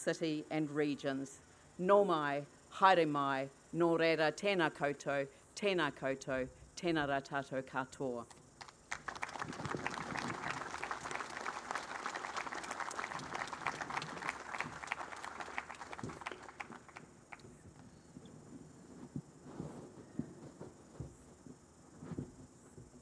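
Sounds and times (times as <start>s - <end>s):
crowd applauding: 8.6s - 17.4s.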